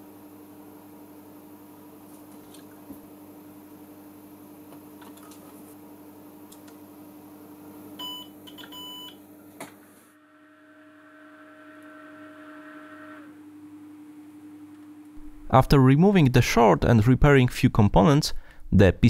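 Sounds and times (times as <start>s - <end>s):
steady electrical hum: 0.0s - 19.0s
faint steady whine: 10.1s - 17.5s.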